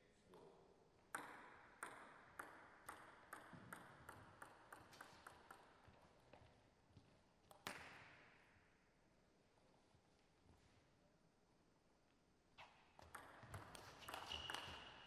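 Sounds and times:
table tennis ball bouncing: 1.1s - 6.1s, 13.0s - 15.0s.

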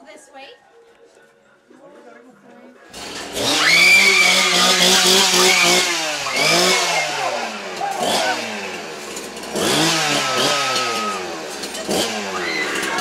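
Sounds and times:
chainsaw revving: 2.9s - 13.0s
people screaming: 3.4s - 8.8s, 10.0s - 13.0s.

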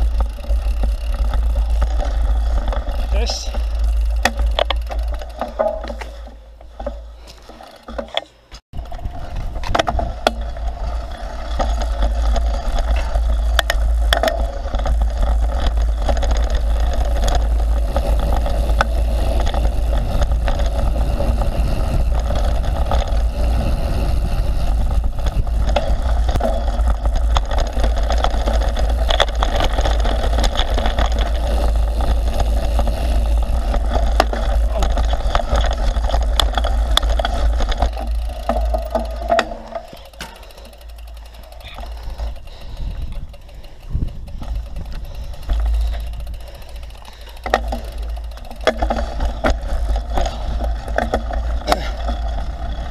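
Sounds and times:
bike rattling and clicking: 0.0s - 52.9s
bike tyre noise: 0.0s - 52.9s
wind buffeting microphone: 8.7s - 39.2s, 41.2s - 52.9s.

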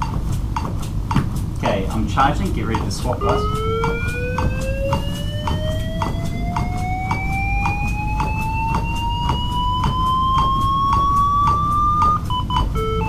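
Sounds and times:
defibrillator charging whine: 3.1s - 13.0s.

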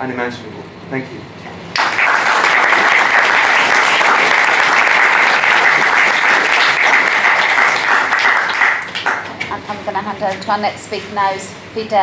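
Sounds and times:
audience applauding: 1.7s - 9.6s.

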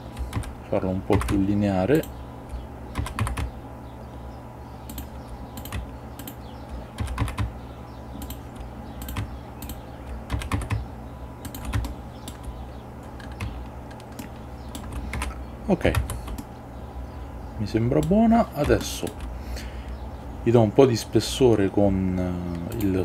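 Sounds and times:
faint steady hum: 0.0s - 23.0s
keyboard keystrokes: 4.9s - 6.4s, 7.0s - 7.5s, 8.2s - 10.8s, 11.4s - 12.5s.

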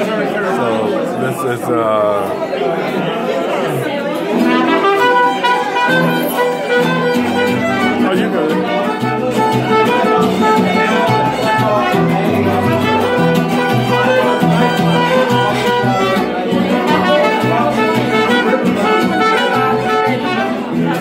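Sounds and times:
strummed guitar rhythm: 0.0s - 2.3s, 3.8s - 21.0s
violin melody: 4.3s - 21.0s
bass guitar line: 9.1s - 21.0s.

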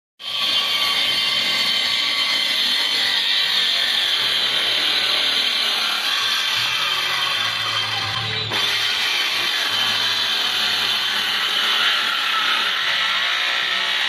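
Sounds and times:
circular saw cutting wood: 0.2s - 14.0s.

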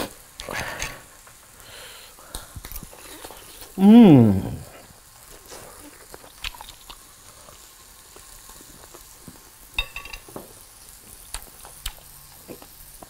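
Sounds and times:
meat sizzling on grill pan: 4.9s - 13.0s.

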